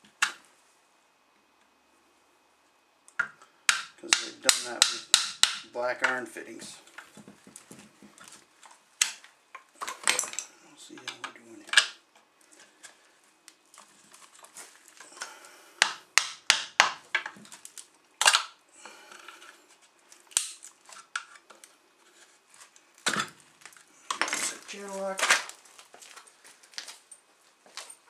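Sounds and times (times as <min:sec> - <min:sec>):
hammer striking chisel: 0:03.7 - 0:05.7, 0:15.8 - 0:17.0.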